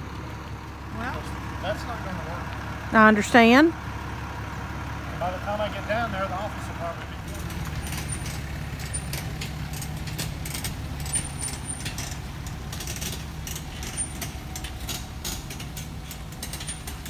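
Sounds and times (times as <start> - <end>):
pickup truck engine running: 0.0 - 17.0
light clicks and rattles: 7.3 - 17.0.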